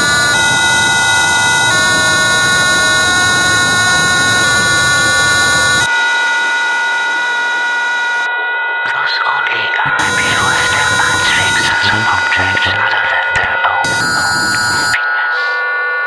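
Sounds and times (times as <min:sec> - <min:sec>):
electronic drone of sustained tones: 0:00.0 - 0:16.0
dense noise bed: 0:08.8 - 0:15.6.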